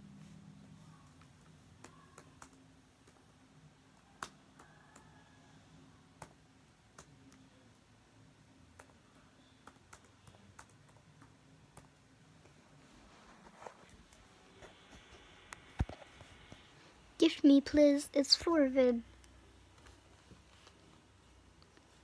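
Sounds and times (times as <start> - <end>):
faint low hum: 0.0 - 22.0.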